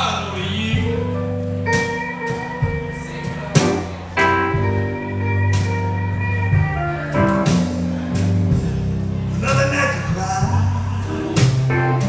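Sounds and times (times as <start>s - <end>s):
electric guitar picking: 0.0s - 12.0s
upright bass walking line: 0.0s - 12.0s.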